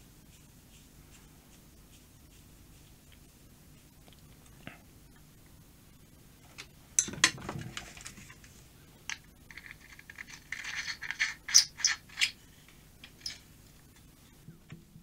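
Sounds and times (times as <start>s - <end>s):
plastic parts scraping and rattling: 7.0s - 13.5s.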